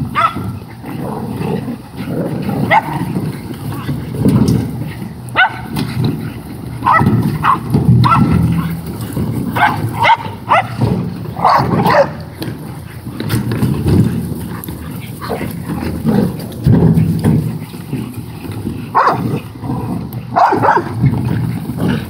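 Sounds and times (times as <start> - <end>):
dogs yipping and barking: 0.0 - 19.6, 20.2 - 22.0
dogs growling: 0.0 - 22.0.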